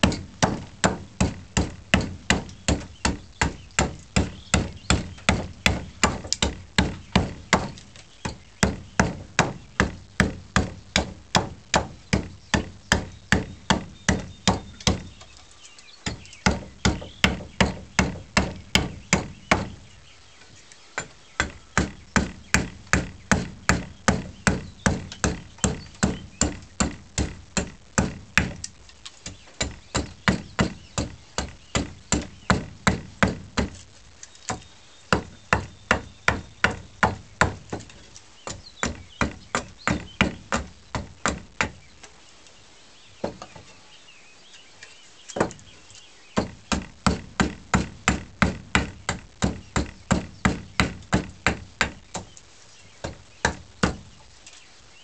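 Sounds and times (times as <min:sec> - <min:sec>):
axe chopping wood: 0:00.0 - 0:15.1, 0:21.0 - 0:33.8, 0:38.5 - 0:41.8, 0:46.4 - 0:52.3, 0:53.0 - 0:54.0.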